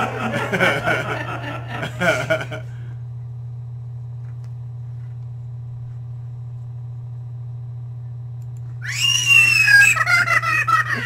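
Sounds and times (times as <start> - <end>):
low electrical hum: 0.0 - 11.0
high-pitched wavering scream: 8.8 - 10.2.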